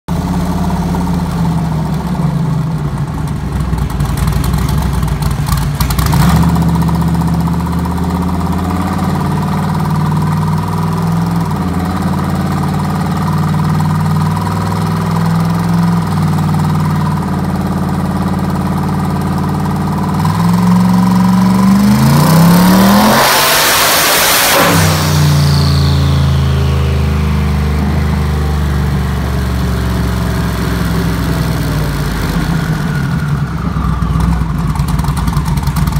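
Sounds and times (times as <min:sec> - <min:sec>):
car engine revving on dyno: 0:05.9 - 0:07.4, 0:20.0 - 0:33.2.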